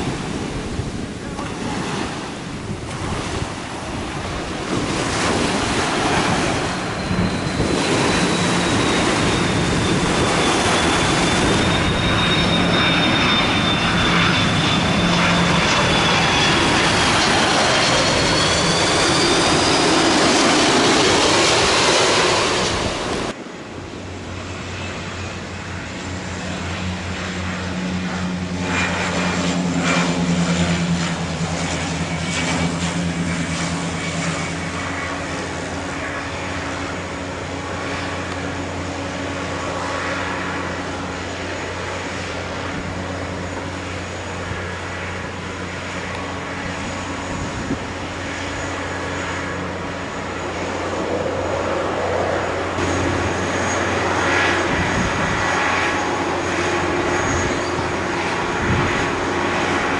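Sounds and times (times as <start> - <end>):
aircraft engine hum: 0.0 - 59.9
jet engines whining: 0.0 - 59.9.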